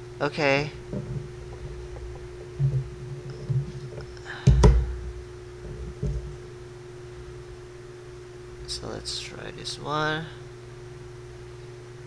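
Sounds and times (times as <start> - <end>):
steady low hum: 0.0 - 12.0
smartphone handling thumps: 0.9 - 6.4.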